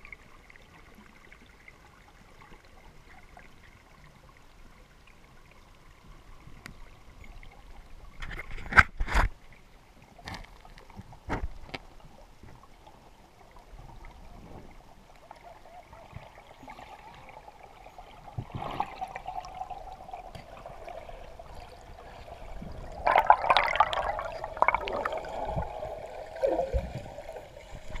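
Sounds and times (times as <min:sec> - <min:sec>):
gurgling air bubbles: 0:18.5 - 0:28.0.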